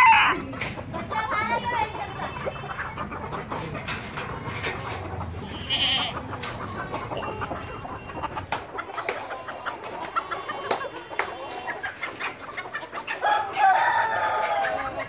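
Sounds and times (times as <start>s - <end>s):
chickens clucking: 0.0s - 15.0s
goat bleating: 5.4s - 7.4s, 10.0s - 10.8s.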